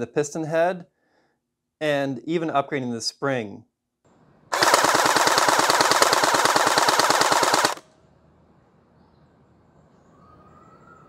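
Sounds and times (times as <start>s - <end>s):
gel blaster firing full auto: 4.5s - 7.8s.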